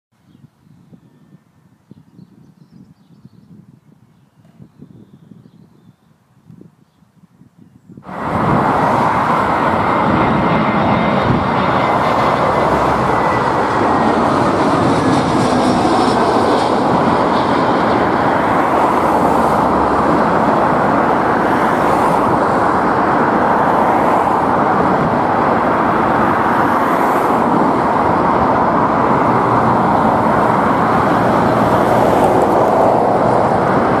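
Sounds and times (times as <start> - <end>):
jet engine noise: 8.0 - 34.0.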